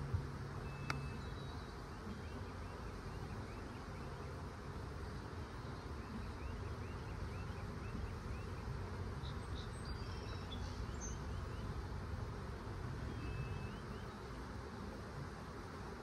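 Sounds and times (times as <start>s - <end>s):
faint high chirps: 0.6s - 4.3s, 13.1s - 14.2s.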